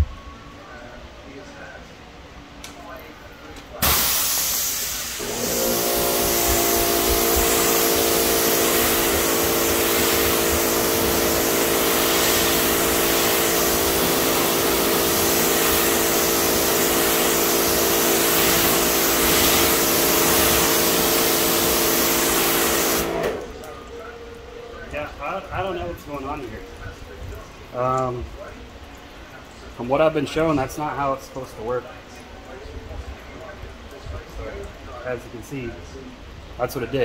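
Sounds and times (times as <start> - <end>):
pressure washer motor humming: 3.2 - 31.2
pressure washer water jet hissing: 3.8 - 23.8.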